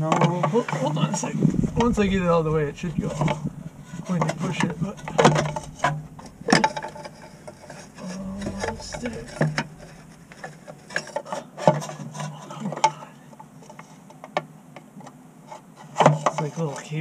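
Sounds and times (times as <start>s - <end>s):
metal clanking: 1.2s - 11.8s
sharp knocks: 1.4s - 11.2s.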